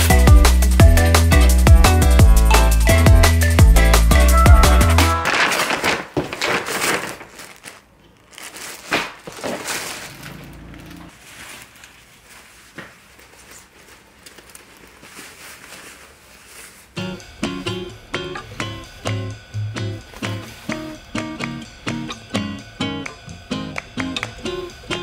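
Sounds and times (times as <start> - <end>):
paper bag crinkling and tearing: 5.0 - 17.0
nylon jacket rustling: 5.1 - 17.0.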